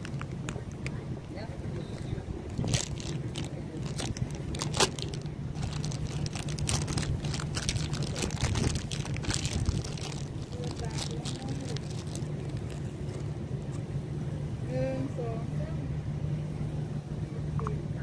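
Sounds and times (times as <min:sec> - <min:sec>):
steady low hum: 0:00.0 - 0:18.0
chips being crunched and chewed: 0:02.5 - 0:13.3.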